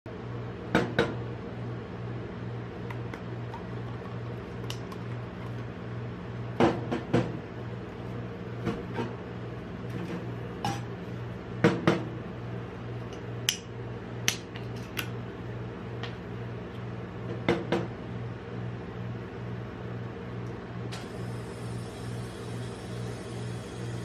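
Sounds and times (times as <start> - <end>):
refrigeration unit hum: 0.1 - 24.0.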